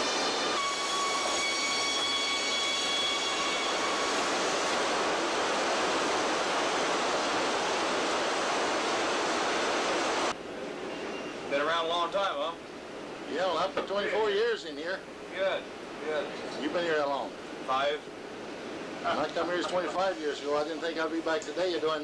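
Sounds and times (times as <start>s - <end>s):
sawmill machinery din: 0.0s - 8.0s.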